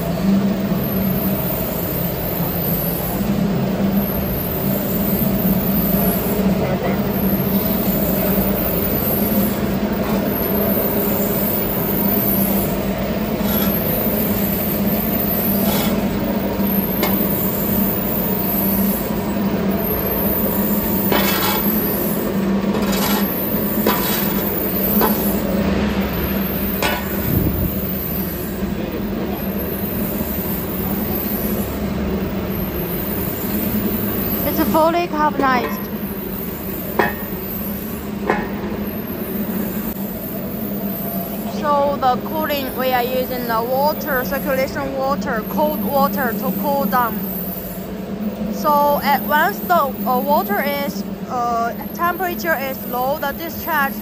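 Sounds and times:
furnace motors humming: 0.0 - 54.0
shovel scraping over concrete: 15.6 - 16.1, 21.1 - 21.9, 22.7 - 25.3.

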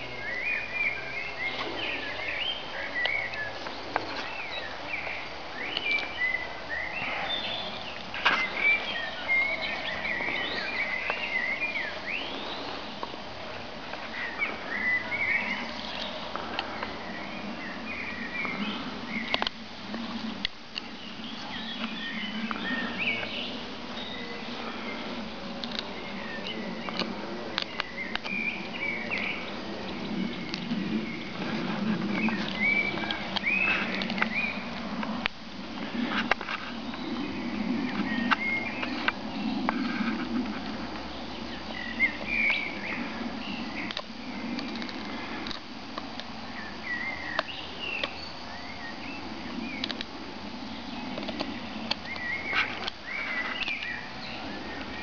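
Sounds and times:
birds chirping: 0.0 - 55.0
dog gnawing wooden stick: 19.2 - 36.8, 37.9 - 48.4, 49.6 - 55.0.

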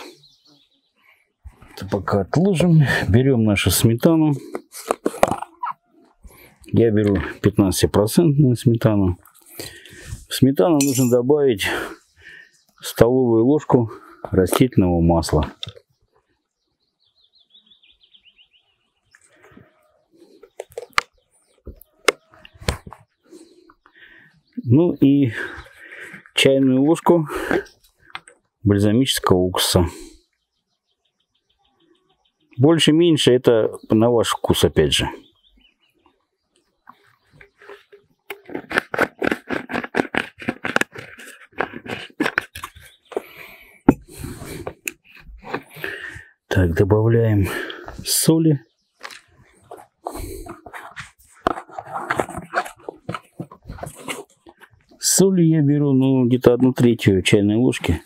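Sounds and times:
bottle scraping handling noise: 4.4 - 7.5, 9.2 - 11.2, 37.4 - 46.2, 49.0 - 55.0
small bird chirping: 15.6 - 26.3, 30.3 - 32.6, 35.2 - 38.8, 42.5 - 43.6
rustling: 49.0 - 55.0.

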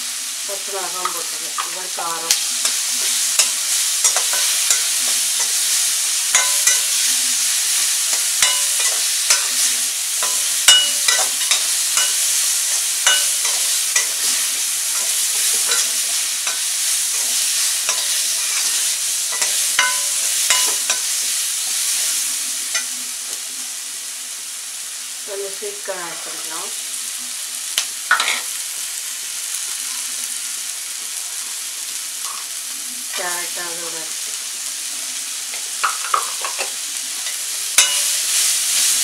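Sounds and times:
vegetables sizzling in a pan: 0.0 - 39.0
spatula scraping a pan: 1.0 - 22.9, 35.5 - 39.0.

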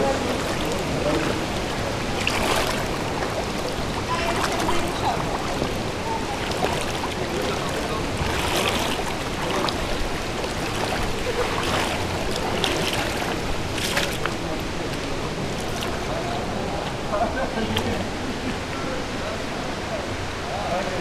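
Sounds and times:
splashes of legs wading: 0.0 - 18.4
river water rushing over pebbles: 0.0 - 21.0.

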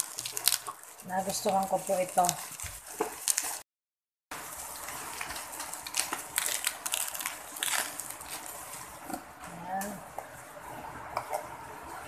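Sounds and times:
bubble wrap crinkling: 0.0 - 3.7, 4.4 - 9.3.

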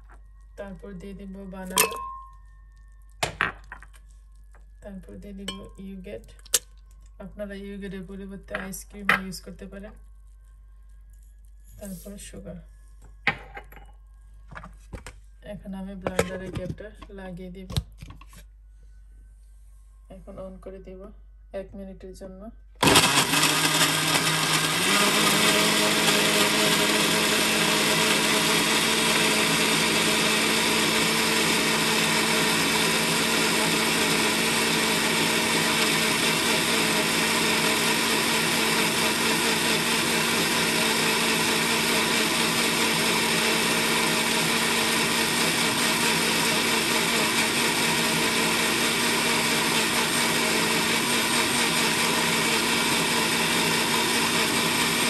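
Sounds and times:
blender running: 22.8 - 55.0.

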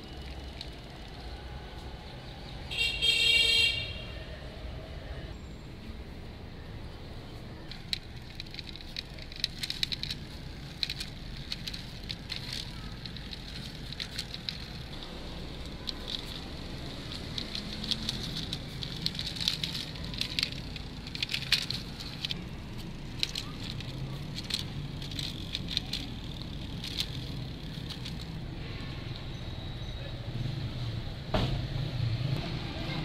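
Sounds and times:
toy wheels rolling on concrete: 0.0 - 3.8, 7.0 - 29.4.

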